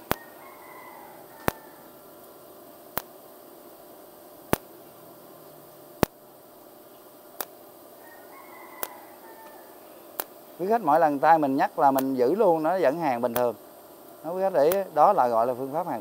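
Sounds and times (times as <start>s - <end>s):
spot welding cracks: 0.0s - 0.3s, 1.4s - 1.6s, 2.2s - 3.3s, 4.4s - 4.8s, 6.0s - 6.2s, 7.2s - 7.7s, 8.8s - 15.8s.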